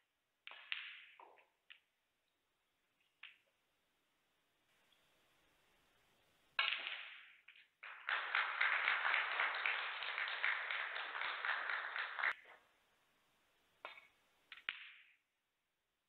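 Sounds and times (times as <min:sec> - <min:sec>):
audience applause: 0:07.8 - 0:12.4.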